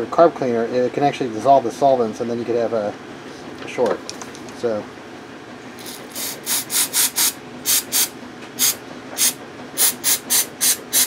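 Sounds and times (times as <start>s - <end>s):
aerosol spray puffs: 5.8s - 11.0s.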